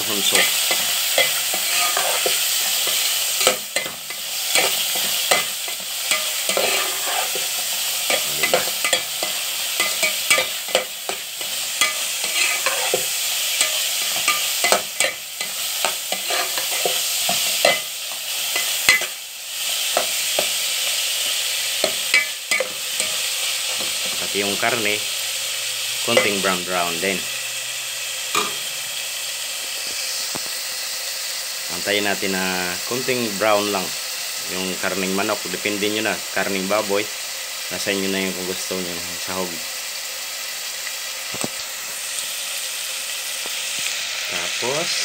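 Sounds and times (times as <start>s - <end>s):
chicken sizzling in hot oil: 0.0s - 45.0s
metal spatula scraping a pot: 0.2s - 19.2s.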